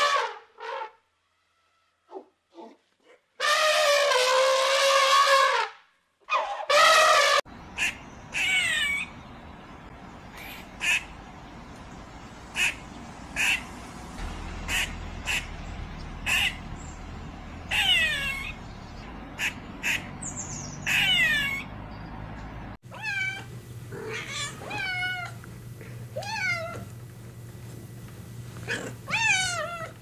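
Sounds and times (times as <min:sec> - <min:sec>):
squirrel chirping and squealing: 0:07.8 - 0:09.2, 0:12.6 - 0:13.8, 0:16.2 - 0:18.8, 0:19.4 - 0:21.7
cat meowing: 0:17.7 - 0:18.6, 0:20.9 - 0:21.7, 0:22.9 - 0:25.4, 0:26.2 - 0:26.9, 0:28.7 - 0:30.0.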